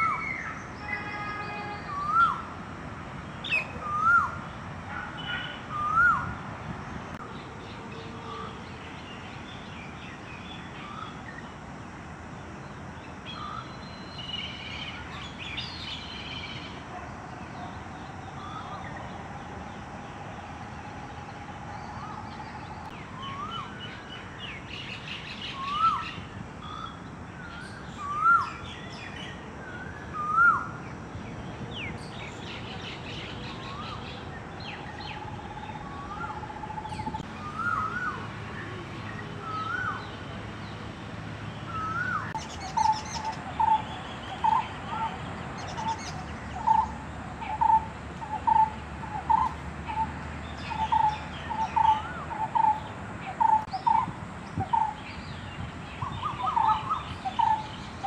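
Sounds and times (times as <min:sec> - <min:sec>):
myna whistling calls: 0:03.4 - 0:06.3, 0:35.0 - 0:38.2, 0:41.7 - 0:46.9
other bird calls: 0:41.6 - 0:55.0, 0:56.0 - 0:58.0.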